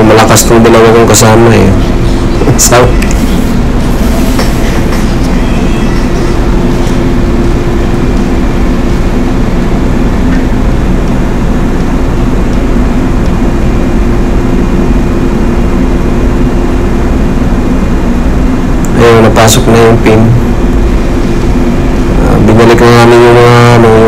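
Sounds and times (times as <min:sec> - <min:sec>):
low hums: 0:00.0 - 0:24.0
machinery drone: 0:00.0 - 0:24.0.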